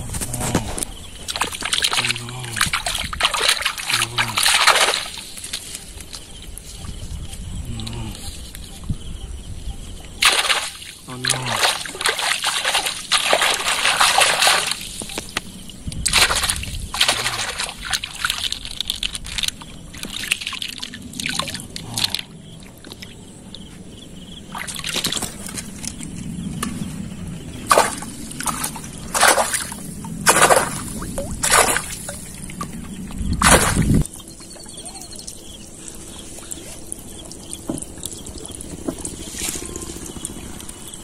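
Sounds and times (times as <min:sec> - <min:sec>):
hand splashing river water: 0:01.3 - 0:05.6, 0:10.2 - 0:15.4, 0:16.1 - 0:22.2, 0:27.7 - 0:32.7, 0:33.4 - 0:34.0.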